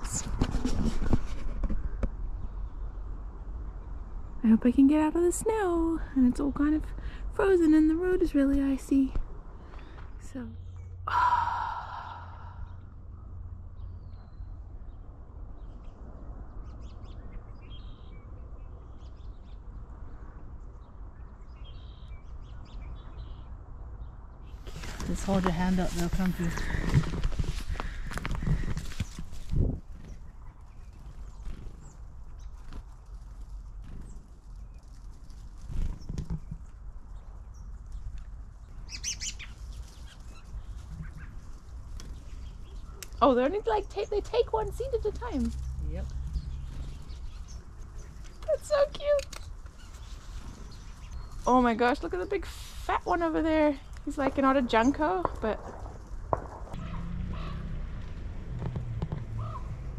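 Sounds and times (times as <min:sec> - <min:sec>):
steady low rumble: 0:01.8 - 0:38.9, 0:39.5 - 0:59.9
songbirds calling: 0:09.6 - 0:57.8, 0:59.2 - 0:59.9
birds chirping: 0:09.7 - 0:16.0, 0:20.6 - 0:32.8, 0:35.7 - 0:57.7.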